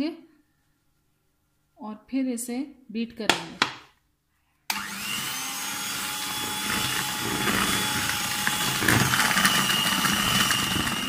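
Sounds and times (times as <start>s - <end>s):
electric hand mixer running: 4.7s - 11.0s.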